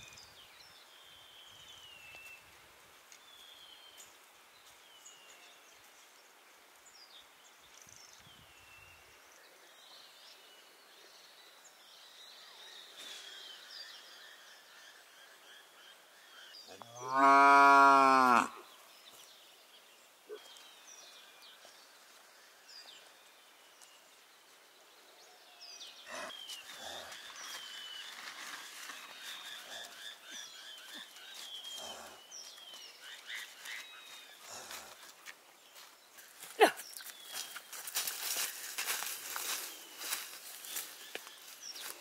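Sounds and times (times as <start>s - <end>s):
cow mooing: 17.0s - 18.6s
small birds chirping: 17.9s - 42.0s.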